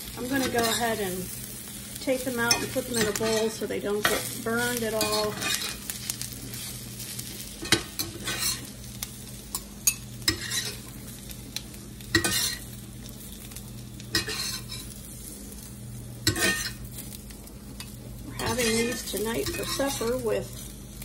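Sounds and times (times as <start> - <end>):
food sizzling: 0.0 - 21.0
low steady hum: 0.0 - 21.0
metal spatula scraping skillet: 0.2 - 1.0, 2.4 - 6.8, 7.6 - 8.7, 9.8 - 10.9, 12.1 - 12.7, 14.1 - 15.0, 16.2 - 16.8, 17.8 - 20.6.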